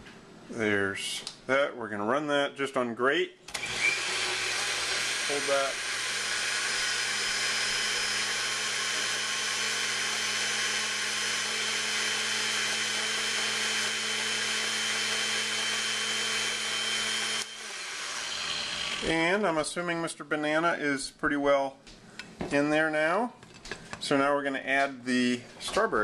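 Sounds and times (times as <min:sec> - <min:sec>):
blender running: 0:03.6 - 0:19.2.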